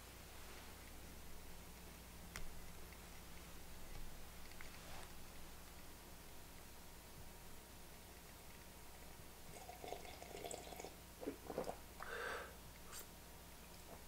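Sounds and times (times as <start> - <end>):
man slurping and swallowing: 11.2 - 11.8.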